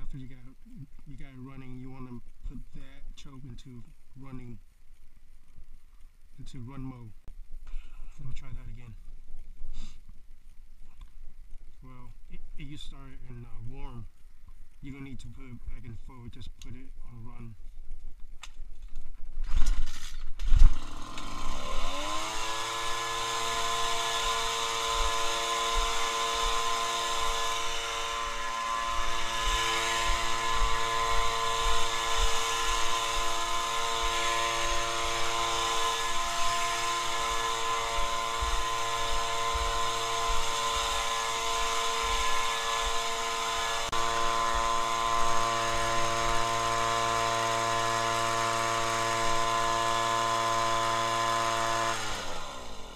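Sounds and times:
pull starter pulls: 19.4s - 52.9s
leaf blower engine running: 20.6s - 52.9s.

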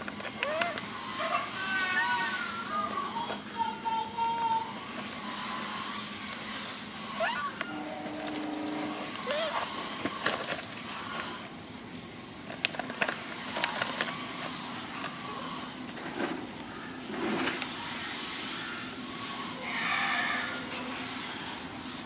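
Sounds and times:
plastic snack packet crinkling: 12.4s - 15.2s.

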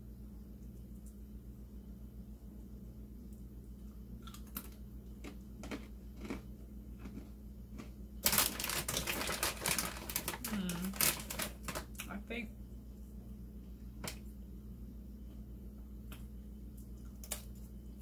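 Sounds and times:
dense crinkling and crackling: 7.0s - 12.1s.

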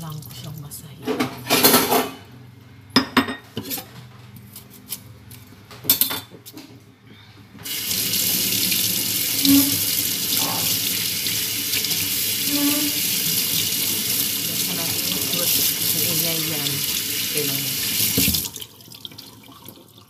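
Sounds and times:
kitchen things clattering: 1.0s - 2.3s
tap water running into sink: 7.6s - 20.0s.

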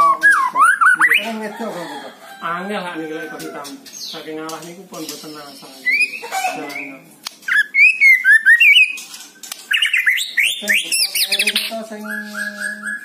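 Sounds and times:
bird singing whistles: 0.0s - 1.3s, 7.5s - 9.0s, 9.7s - 13.0s.

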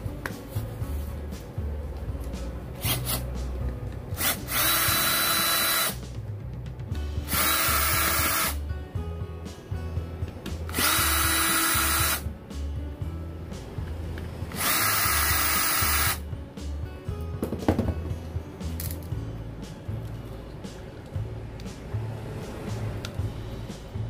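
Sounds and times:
background music with beat: 0.0s - 24.0s
cordless drill motor whine: 4.2s - 6.0s, 7.3s - 8.6s, 10.7s - 12.2s, 14.5s - 16.2s.

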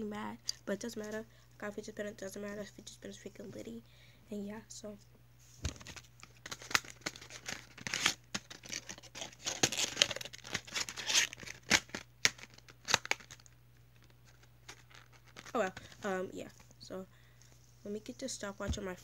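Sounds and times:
plastic packaging crinkling: 5.6s - 16.6s.

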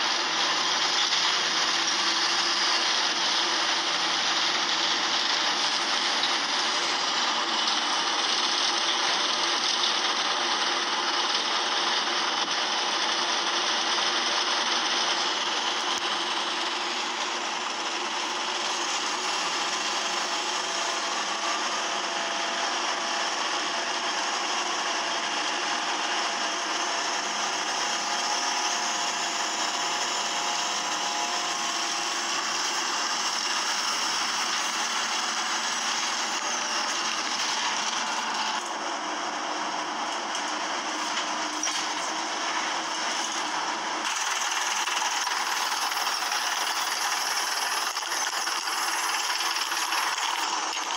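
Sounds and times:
bus engine drone: 0.0s - 50.9s.

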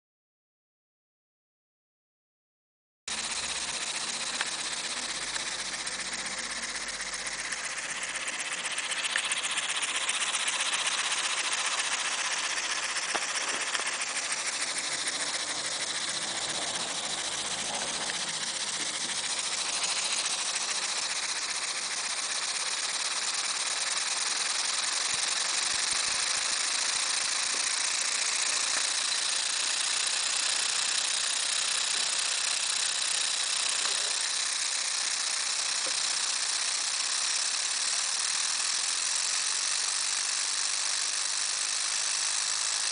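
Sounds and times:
air engine hissing: 3.1s - 30.4s.

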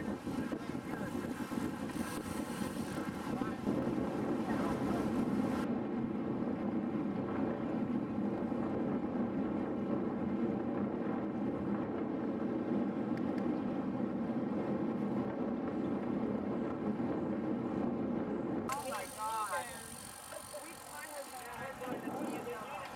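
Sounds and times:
wind noise on microphone: 0.0s - 22.9s.

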